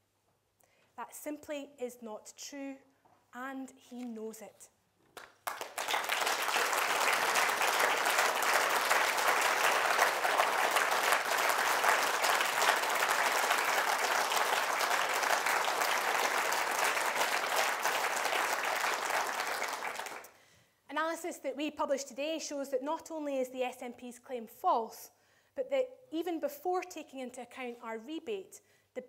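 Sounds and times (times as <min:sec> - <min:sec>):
audience applauding: 0:05.2 - 0:20.4.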